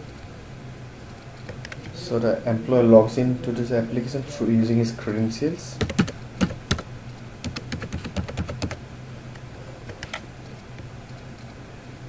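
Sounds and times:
low steady hum: 0.0s - 12.0s
keyboard typing: 5.8s - 8.8s, 9.9s - 10.2s.

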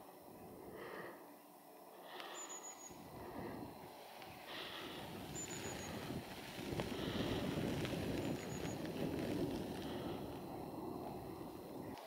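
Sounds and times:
wind rumbling on microphone: 2.9s - 12.0s.

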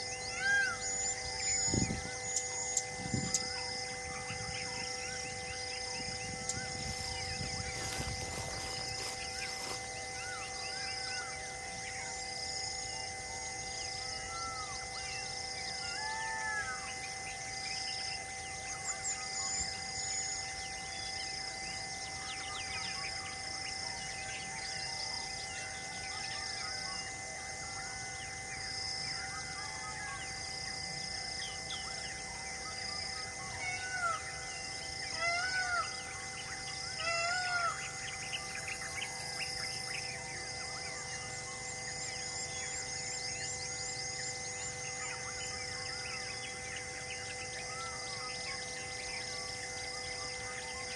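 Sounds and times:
birds chirping: 0.0s - 12.1s
pulsing high insect-like note: 0.0s - 50.9s.

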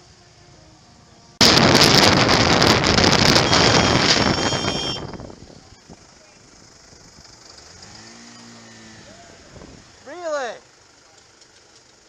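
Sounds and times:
wind roar and buffeting on microphone: 1.4s - 6.0s, 9.4s - 9.9s.

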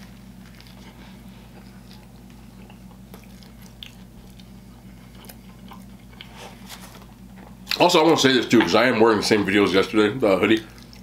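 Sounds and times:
person chewing a sandwich: 0.0s - 8.2s, 10.4s - 11.0s
steady low hum: 0.0s - 11.0s.

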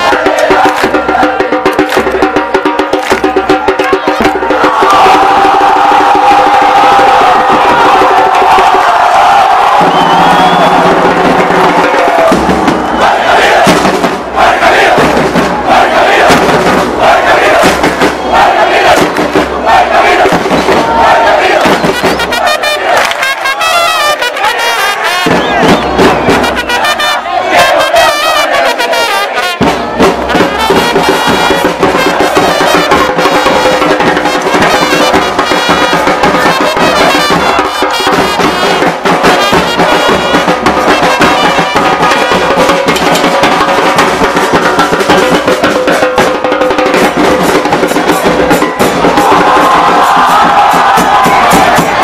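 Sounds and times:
fans singing: 0.0s - 52.0s
trumpet playing chant melody: 0.0s - 52.0s
bass drum thuds: 9.7s - 22.2s.

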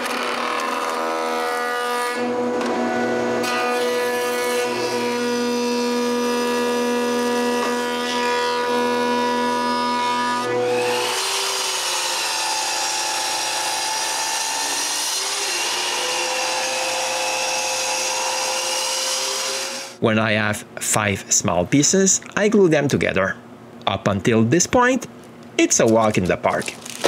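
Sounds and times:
miter saw cutting wood: 0.0s - 20.0s
thickness planer humming: 0.0s - 20.0s.

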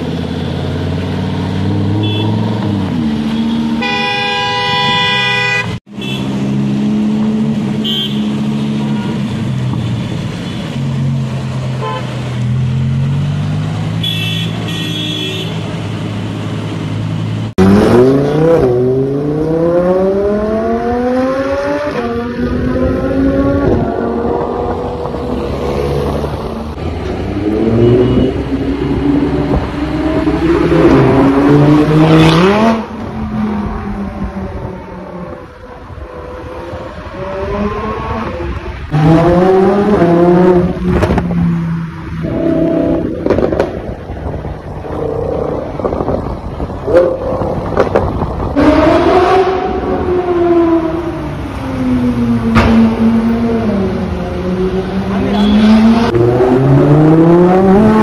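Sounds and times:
sports car engine accelerating: 46.9s - 58.0s.

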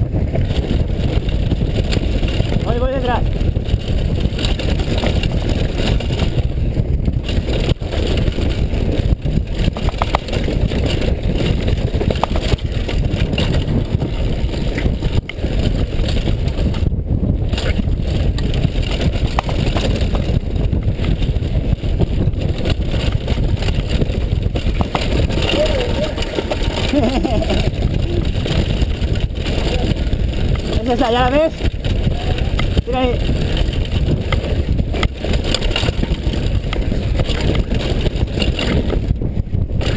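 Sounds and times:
bike knocking and rattling: 0.0s - 39.9s
wind on microphone: 0.0s - 39.9s
tyres on gravel: 7.2s - 16.8s, 17.6s - 39.1s.

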